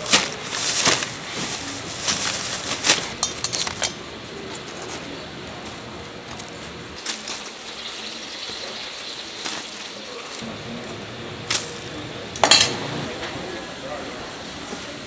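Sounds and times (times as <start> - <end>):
metal tongs clicking: 3.2 - 4.0.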